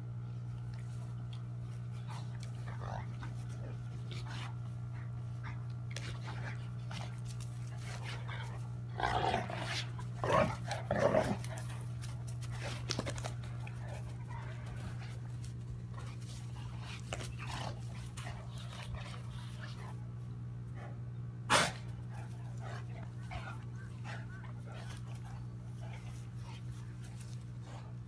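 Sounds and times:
steady low hum: 0:00.0 - 0:28.0
dogs play growling: 0:00.4 - 0:28.0.

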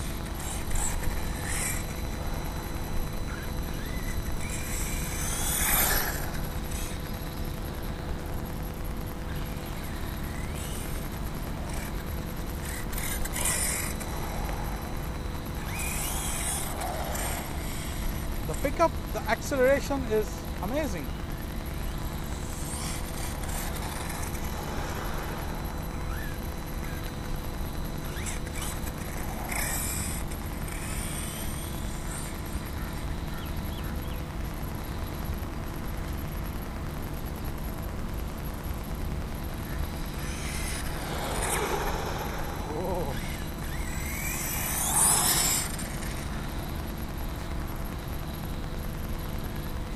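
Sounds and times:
electric motor whine: 0:00.0 - 0:49.9
electric motor whining: 0:39.6 - 0:47.5.

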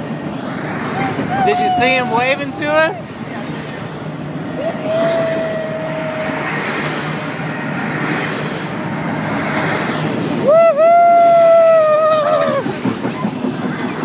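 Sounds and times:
freight train wheels on rail: 0:00.0 - 0:14.0
man yelling: 0:01.3 - 0:03.0.

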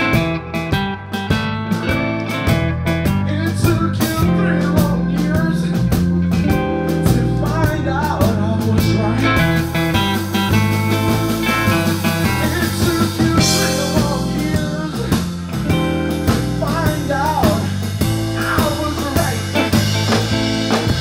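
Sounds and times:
blues band playing: 0:00.0 - 0:21.0
electric guitar with bent notes: 0:00.0 - 0:21.0.

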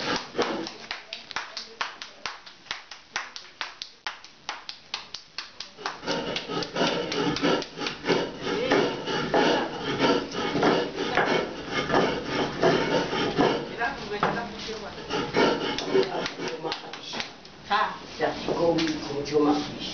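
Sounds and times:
hands slapping tortilla dough: 0:00.0 - 0:08.2.

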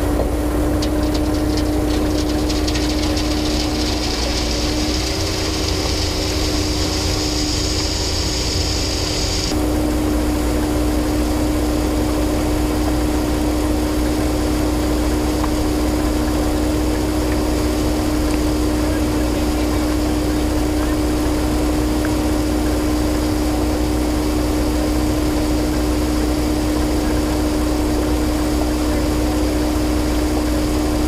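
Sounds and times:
concrete mixer truck running: 0:00.0 - 0:31.0
high hiss: 0:02.5 - 0:09.5.

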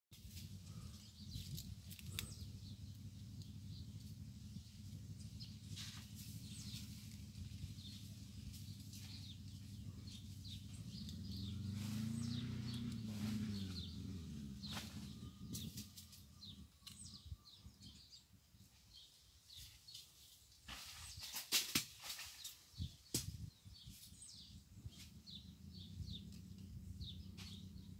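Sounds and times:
low hum: 0:00.2 - 0:18.4
small birds chirping: 0:00.2 - 0:27.9.

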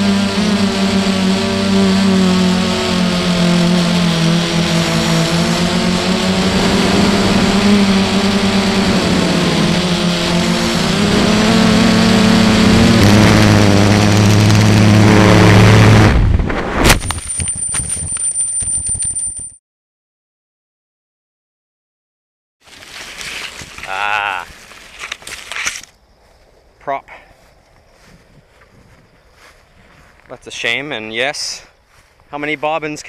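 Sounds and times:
drone motors droning: 0:00.0 - 0:16.1
high steady whine: 0:00.0 - 0:19.4
sharp crash impact: 0:16.1 - 0:17.3.

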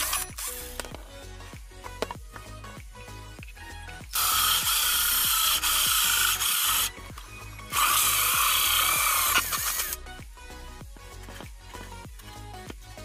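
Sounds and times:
drill with hole saw cutting pipe: 0:00.0 - 0:00.9, 0:04.1 - 0:10.0
background music: 0:00.0 - 0:13.0.

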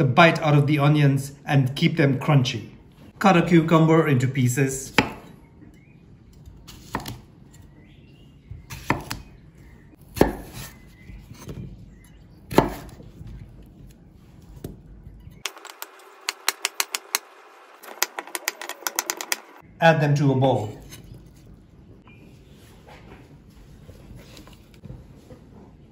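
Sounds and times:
knife chopping quickly: 0:08.7 - 0:09.2, 0:10.1 - 0:11.6, 0:12.5 - 0:13.0.

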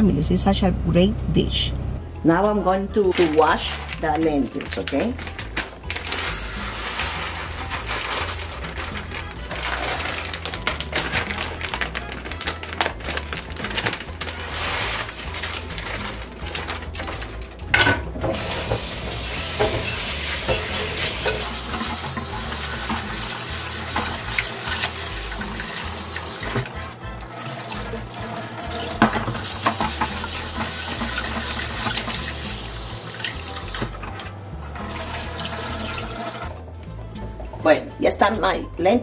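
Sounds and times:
faucet running into a sink: 0:21.1 - 0:26.6, 0:27.3 - 0:33.9, 0:34.8 - 0:36.5.

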